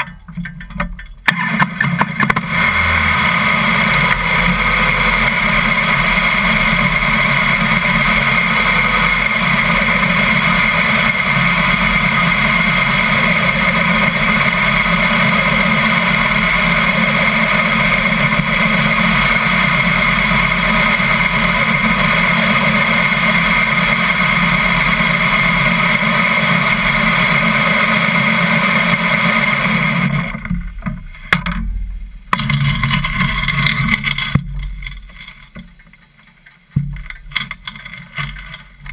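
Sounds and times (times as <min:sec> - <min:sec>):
motorcycle engine running: 0:00.0 - 0:36.1.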